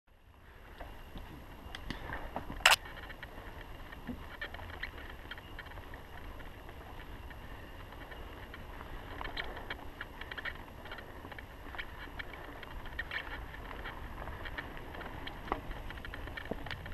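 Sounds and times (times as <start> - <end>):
bike rolling on dirt: 0.2 - 16.9
bike clicks and rattles: 0.6 - 16.9.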